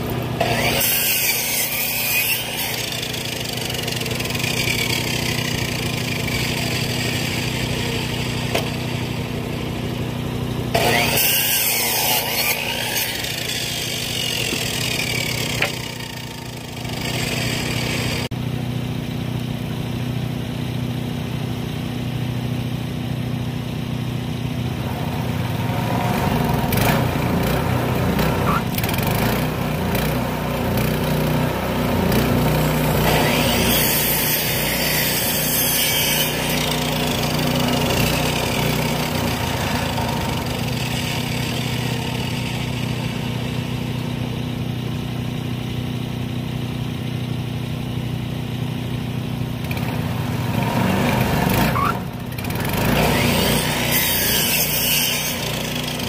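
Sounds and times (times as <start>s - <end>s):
band blade cutting log: 0.0s - 18.3s, 32.0s - 44.6s, 51.0s - 56.0s
small gasoline engine running: 0.0s - 56.0s.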